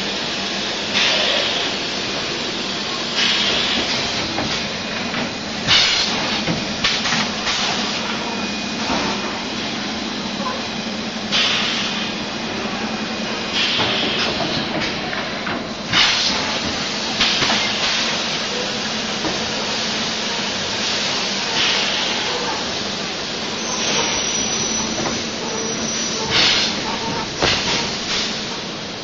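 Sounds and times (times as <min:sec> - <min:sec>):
compressed air blasts hissing: 0:03.1 - 0:04.7.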